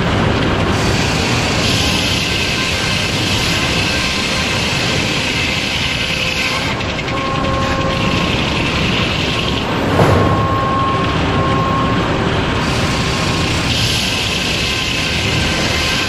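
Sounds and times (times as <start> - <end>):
mill machinery hum: 5.8 - 15.8
thump: 9.8 - 10.9.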